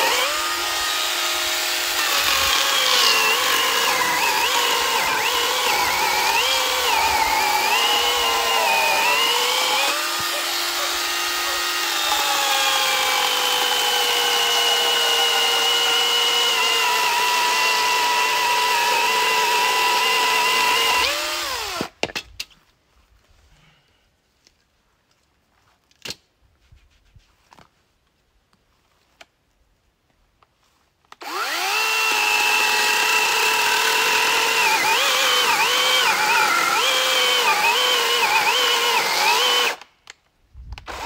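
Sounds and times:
electric chainsaw cutting log: 0.0 - 21.9, 31.2 - 39.9, 40.8 - 41.0.

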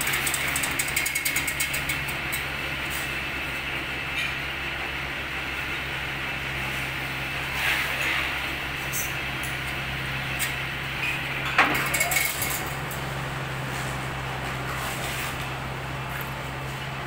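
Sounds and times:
steady low hum: 0.0 - 17.0
gym machine metal clinks: 11.1 - 12.7.

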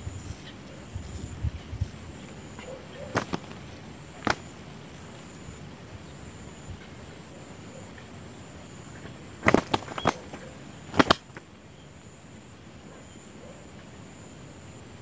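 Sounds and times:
dove wings clapping: 2.9 - 5.4, 9.4 - 11.5.

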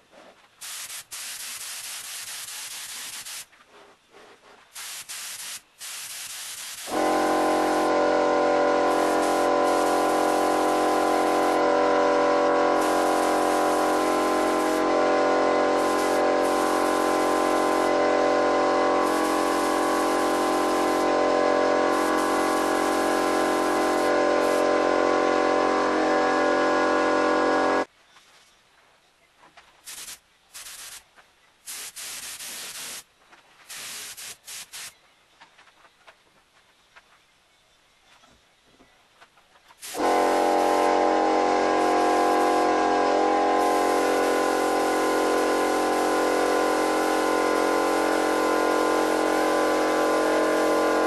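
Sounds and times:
paint spray gun hissing: 0.6 - 3.5, 4.8 - 24.9, 29.8 - 31.1, 31.7 - 33.1, 33.7 - 35.0, 39.8 - 51.0.

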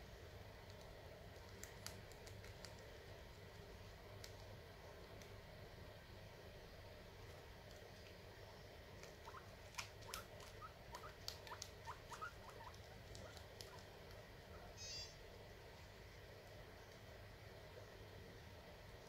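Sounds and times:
guinea pigs chewing: 0.2 - 6.0, 6.9 - 14.7
guinea pig squeaks: 9.0 - 15.2.

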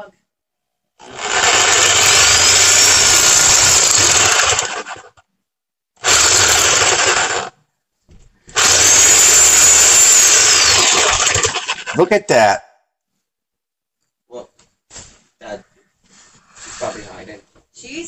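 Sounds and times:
reciprocating saw cutting metal can: 1.0 - 5.1, 6.0 - 7.5, 8.6 - 12.0.

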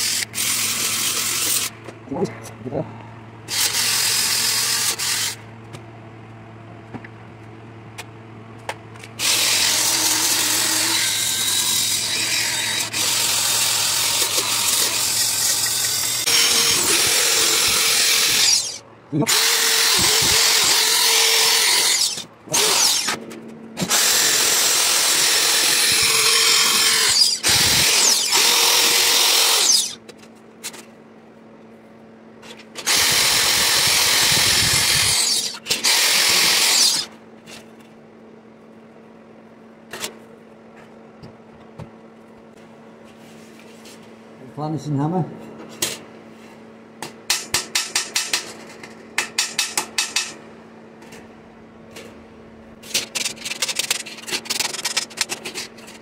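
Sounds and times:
drill wire brush scrubbing copper: 14.5 - 23.1, 24.4 - 30.0.

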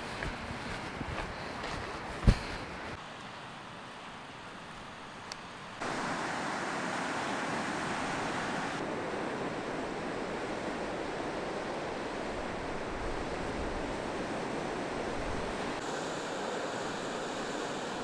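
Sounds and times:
wind on microphone: 8.1 - 15.8.

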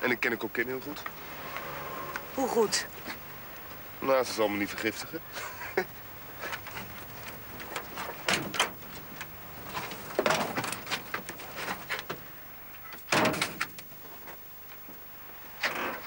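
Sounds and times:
van door opening: 7.7 - 9.2, 12.9 - 13.8
van door slamming shut: 13.1 - 13.7.

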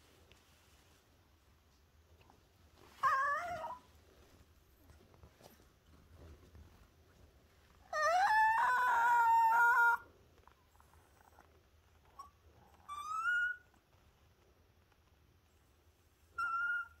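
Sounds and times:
dog whining: 2.9 - 3.9, 7.8 - 10.1, 11.0 - 13.9, 16.3 - 17.0.

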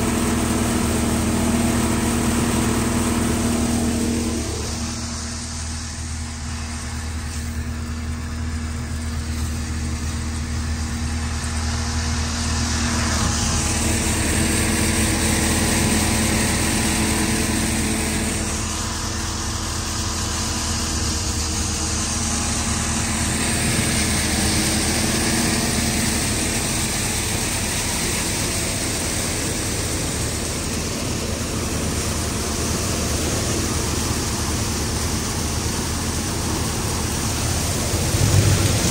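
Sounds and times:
threshing drum whirring: 0.0 - 38.9
tractor engine drone: 0.0 - 38.9.

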